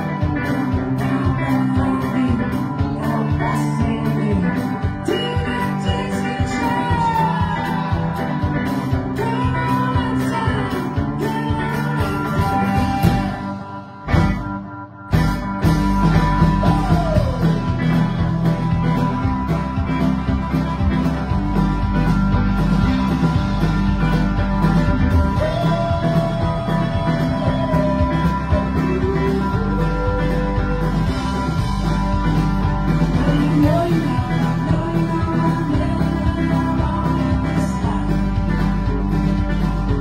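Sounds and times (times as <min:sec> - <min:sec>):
person singing: 0:00.0 - 0:14.3, 0:16.0 - 0:18.2, 0:24.9 - 0:40.0
drum kit beat: 0:00.0 - 0:14.5, 0:15.1 - 0:40.0
electric guitar: 0:00.0 - 0:40.0.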